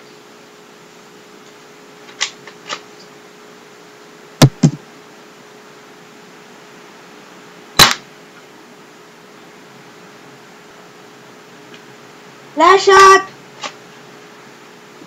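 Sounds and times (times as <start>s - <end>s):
airsoft pistol shots: 7.8s - 8.0s.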